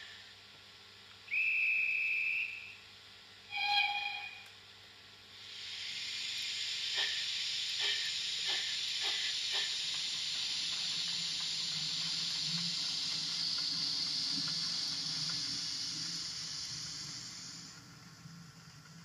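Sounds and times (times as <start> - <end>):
steam hiss: 0.0 - 0.3, 5.3 - 19.0
steam locomotive chuffs: 5.4 - 19.0.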